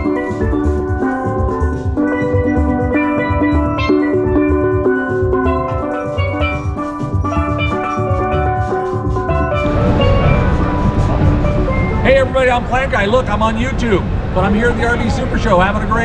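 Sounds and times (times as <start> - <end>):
steady drum beat: 0.0 - 13.6
steel pan notes: 0.0 - 15.8
crowd noise: 9.6 - 16.0.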